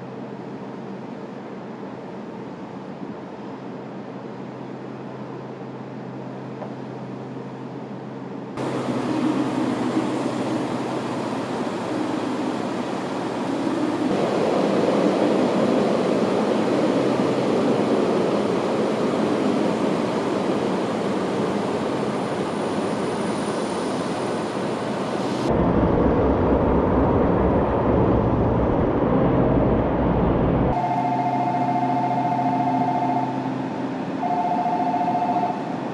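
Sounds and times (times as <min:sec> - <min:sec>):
diesel locomotive engine rumbling: 0:00.0 - 0:35.9.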